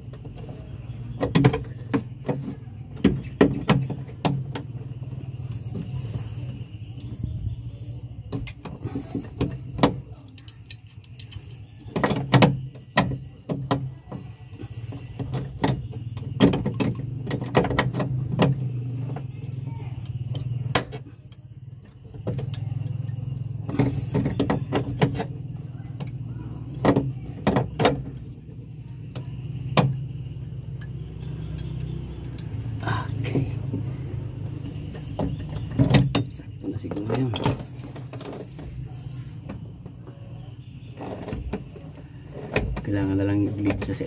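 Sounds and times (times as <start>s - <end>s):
low steady hum: 0.0s - 44.0s
hand tools clinking on metal: 10.0s - 11.6s, 30.1s - 33.4s.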